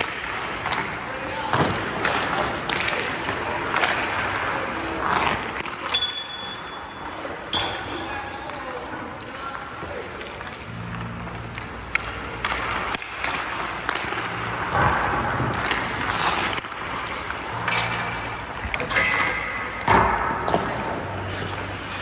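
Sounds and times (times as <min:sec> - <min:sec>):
skate blades scraping ice: 0:11.7 - 0:18.2, 0:21.0 - 0:22.0.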